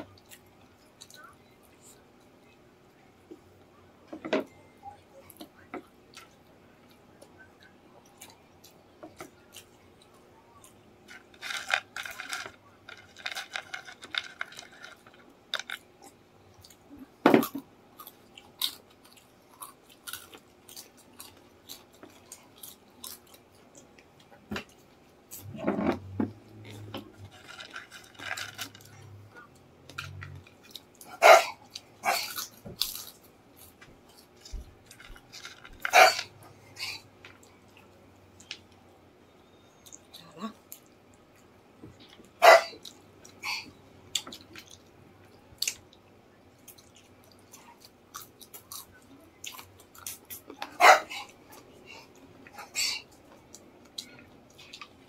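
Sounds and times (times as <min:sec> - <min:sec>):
chewing crispy food: 0:00.0 - 0:03.8, 0:04.8 - 0:55.0.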